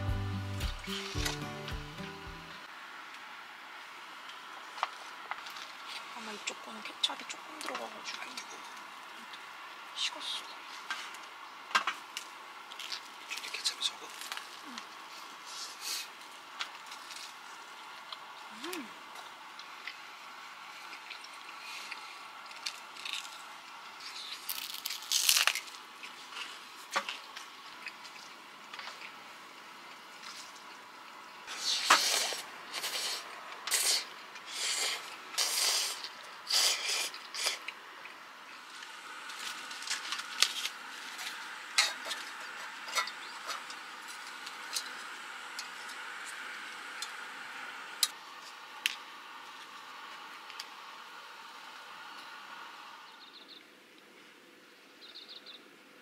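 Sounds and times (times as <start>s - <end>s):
slurping noodles: 31.5s - 37.8s.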